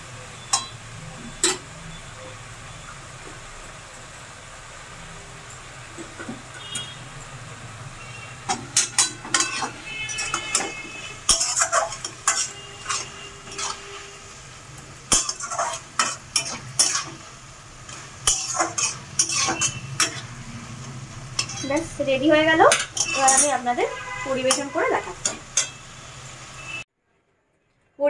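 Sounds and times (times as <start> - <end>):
spatula scraping metal pan: 8.5 - 14.3, 15.1 - 17.2, 17.9 - 25.9.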